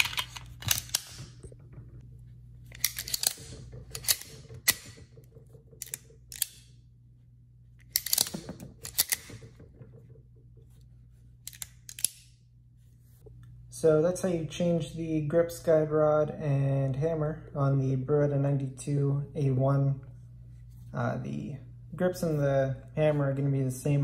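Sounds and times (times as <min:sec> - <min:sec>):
pistol slide and hammer clicks: 0:11.5 - 0:12.3.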